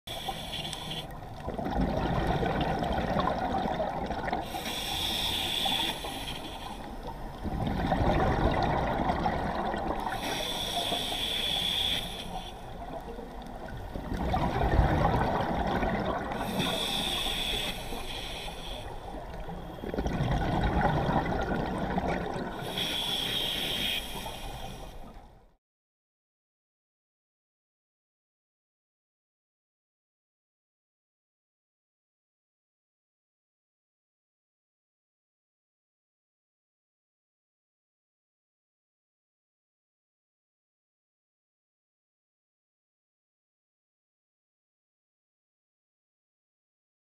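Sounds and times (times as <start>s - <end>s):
regulator inhale hiss: 0.1s - 1.4s, 4.4s - 7.4s, 10.0s - 14.1s, 16.3s - 19.9s, 22.5s - 25.2s
bubbly gurgle of exhaled air: 1.1s - 4.8s, 7.4s - 10.4s, 12.8s - 17.4s, 19.1s - 22.8s.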